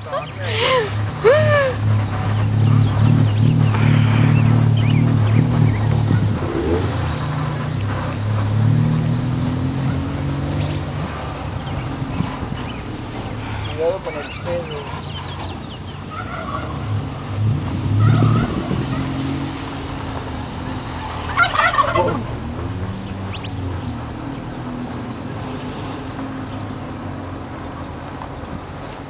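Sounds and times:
car engine running: 0.0s - 29.0s
turkey gobbling: 16.1s - 16.8s, 21.2s - 22.3s.

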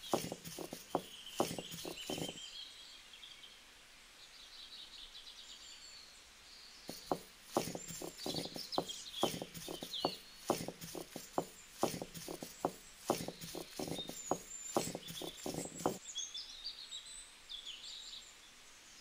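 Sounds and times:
stone roller knocking on stone slab: 0.0s - 2.4s, 6.9s - 16.0s
birds chirping: 0.0s - 2.5s, 6.9s - 16.0s.

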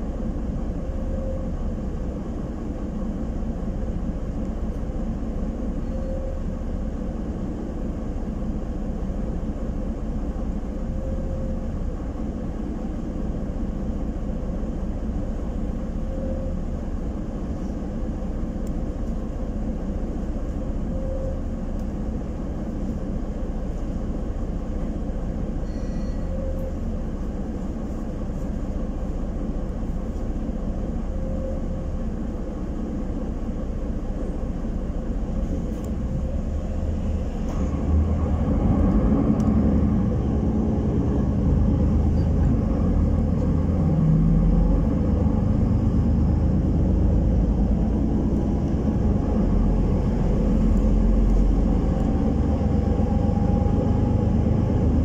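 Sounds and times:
bus engine rumble: 0.0s - 55.0s
road noise: 0.0s - 55.0s.

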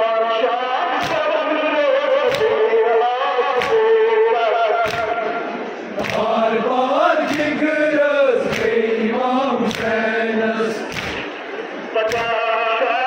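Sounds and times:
crowd of men chanting: 0.8s - 12.9s
chest-beating slaps: 1.0s - 1.3s, 2.3s - 2.6s, 3.6s - 3.9s, 4.8s - 5.3s, 6.0s - 12.4s.

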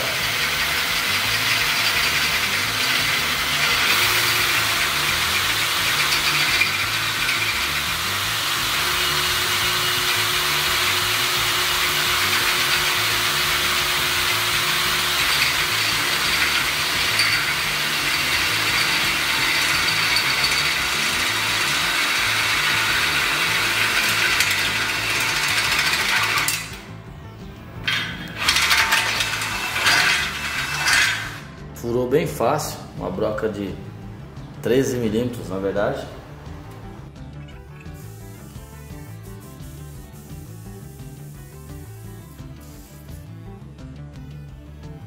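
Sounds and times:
cordless drill drilling into steel: 0.0s - 26.9s, 27.9s - 31.5s.

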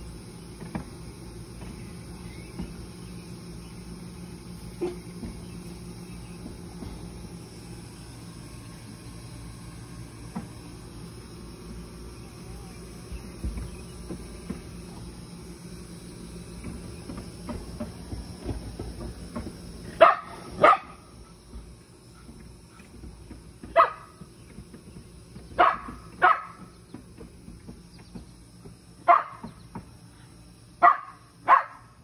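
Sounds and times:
insects chirring: 0.0s - 32.0s
dog barking: 20.0s - 21.0s, 23.8s - 24.1s, 25.6s - 26.6s, 29.1s - 29.5s, 30.8s - 31.9s.

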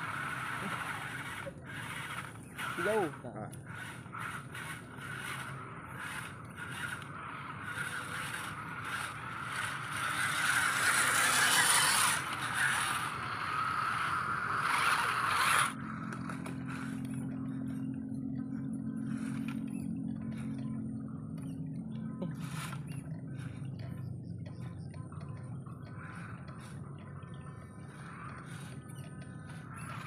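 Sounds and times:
tyres scraping through mud and grass: 0.0s - 17.1s
toy truck electric motor whining: 0.0s - 18.0s, 18.9s - 24.0s, 24.6s - 30.0s
low steady hum: 0.0s - 30.0s
ticks: 16.1s - 30.0s.

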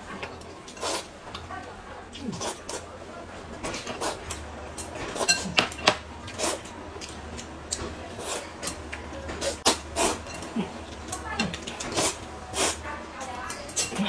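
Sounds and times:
chopsticks clinking on bowl: 4.3s - 6.0s, 10.1s - 12.1s, 13.2s - 14.0s
noodles slurping: 9.4s - 12.9s.

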